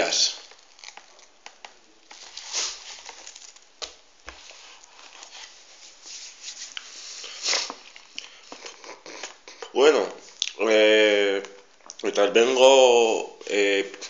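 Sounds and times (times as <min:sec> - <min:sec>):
soft rustling and handling: 0:00.4 - 0:10.4.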